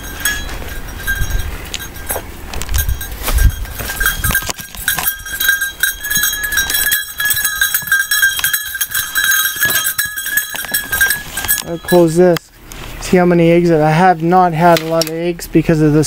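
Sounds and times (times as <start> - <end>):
footsteps and knocks: 0.0 - 12.1
steady high ringing tone: 0.0 - 13.7.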